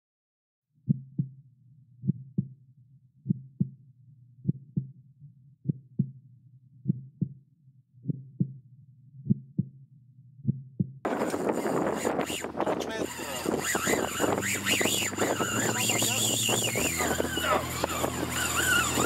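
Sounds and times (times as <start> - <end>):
heartbeat double thump: 0.9 - 1.4, 2.0 - 2.6, 4.4 - 5.0, 8.0 - 8.6, 9.2 - 9.8, 10.4 - 18.9.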